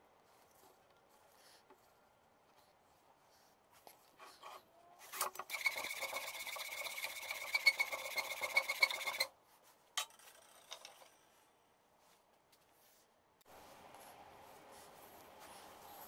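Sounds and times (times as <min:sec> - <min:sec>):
file rasping on wood: 0:05.5 - 0:09.3.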